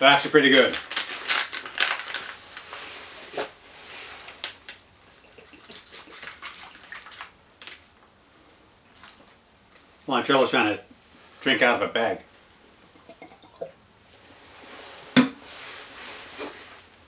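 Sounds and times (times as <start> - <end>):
plastic pouch crinkling: 0.2 - 2.8, 4.0 - 7.9
water pouring into pouch: 5.3 - 7.3, 12.9 - 13.8.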